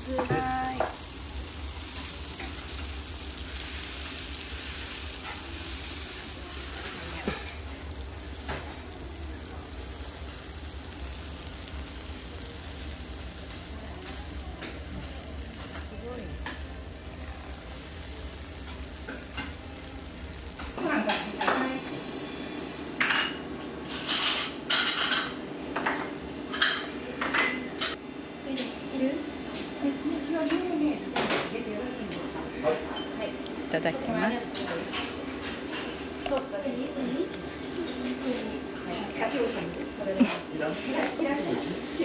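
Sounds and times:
noodles sizzling on a griddle: 0.0s - 21.6s, 36.6s - 42.0s.

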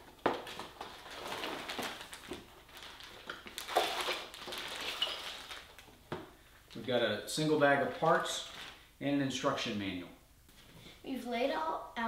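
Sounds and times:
packaging rustling: 0.0s - 6.8s.

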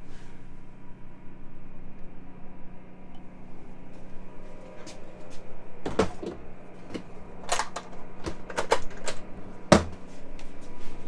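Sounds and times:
knocks and clicks on wooden cabinet: 9.7s - 10.0s.

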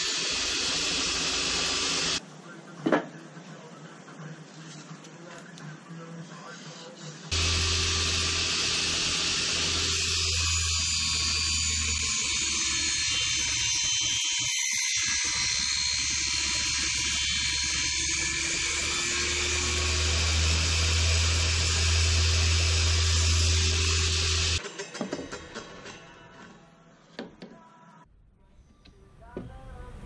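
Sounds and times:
table saw cutting plywood: 0.0s - 2.2s, 7.3s - 24.6s.

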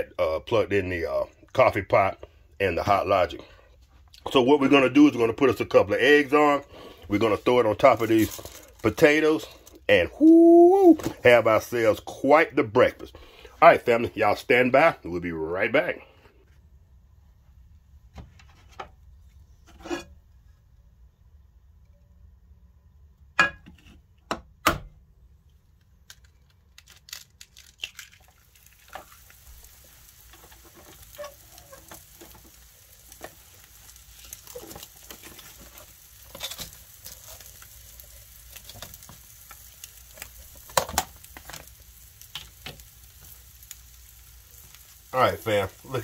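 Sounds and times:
food sizzling and crackling: 2.3s - 12.2s, 26.8s - 46.0s.

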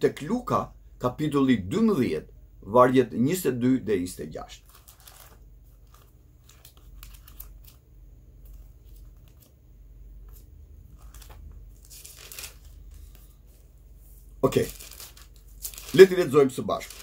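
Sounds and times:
pages rustling: 4.6s - 7.8s, 8.4s - 9.6s, 10.2s - 17.0s.

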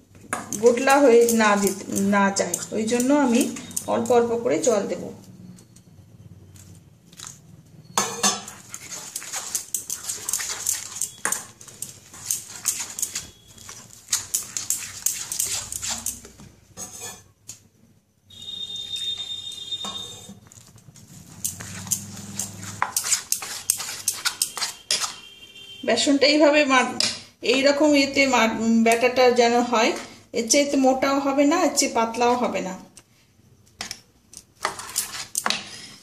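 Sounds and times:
metal spoon scraping steel bowl: 0.5s - 4.7s, 7.9s - 17.3s, 18.8s - 25.4s, 34.6s - 36.0s.

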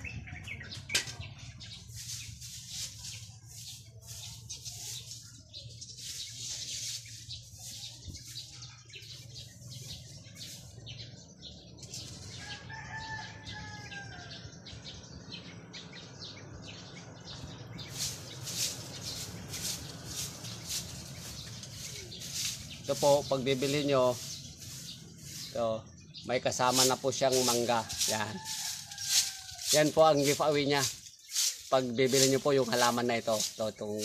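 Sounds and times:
distant rooster crowing: 12.2s - 15.1s, 27.3s - 30.4s
crackling rustling noise: 26.9s - 33.7s.

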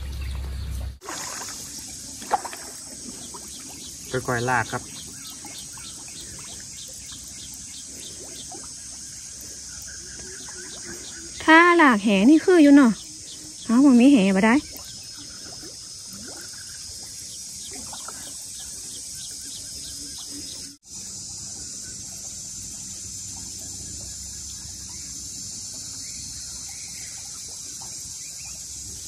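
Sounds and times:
water sloshing from net: 0.0s - 13.0s, 13.7s - 19.2s.

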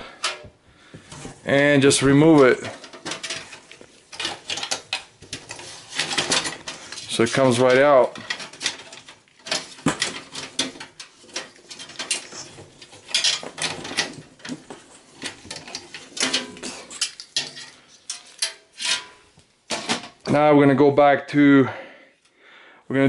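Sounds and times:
metallic clicks and rattles: 2.3s - 20.3s.

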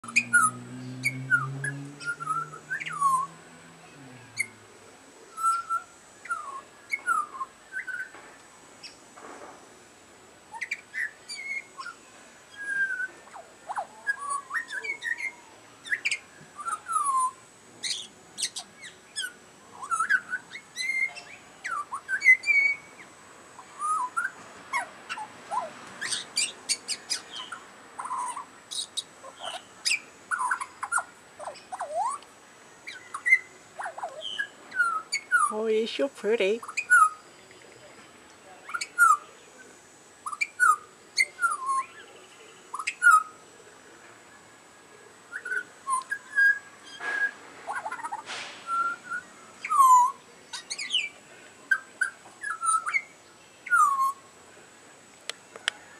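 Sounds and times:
bird singing fluting whistles: 0.0s - 3.4s, 5.3s - 8.1s, 10.6s - 23.0s, 23.7s - 24.4s, 32.8s - 35.6s, 36.7s - 37.3s, 40.2s - 42.1s, 42.7s - 43.4s, 45.3s - 51.1s, 51.7s - 54.3s.

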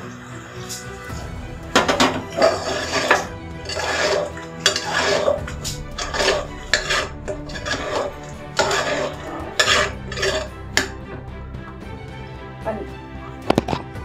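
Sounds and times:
metal spoon scraping a pot: 0.6s - 11.1s.

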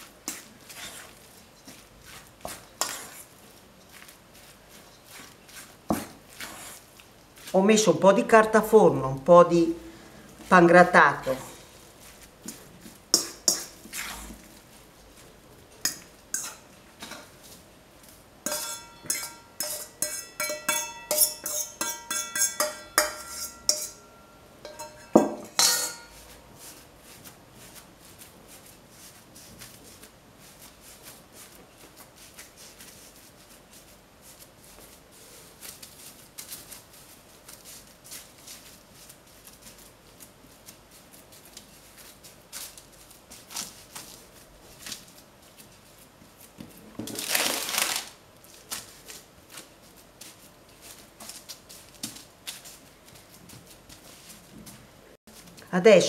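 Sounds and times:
hands patting minced meat: 0.0s - 7.6s, 26.2s - 47.2s
metal bowl clinking and ringing: 18.5s - 26.3s.

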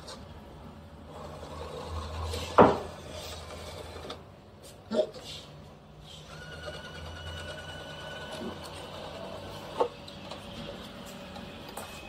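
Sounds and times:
small geared motor whining: 6.2s - 10.8s.

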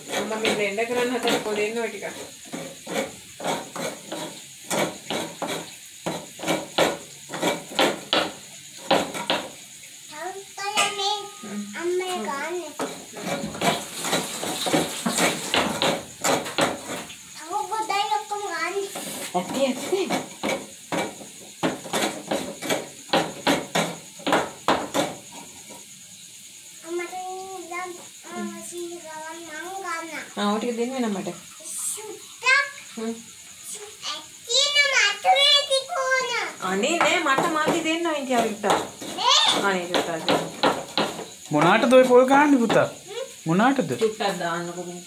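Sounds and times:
coconut flesh scraping: 0.0s - 8.0s, 12.8s - 17.0s
coconut shell knocking: 4.1s - 9.6s, 14.6s - 17.0s, 36.8s - 43.0s.

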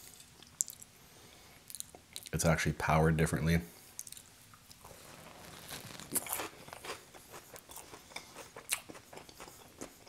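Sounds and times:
chewing pizza crunches: 4.0s - 10.0s.

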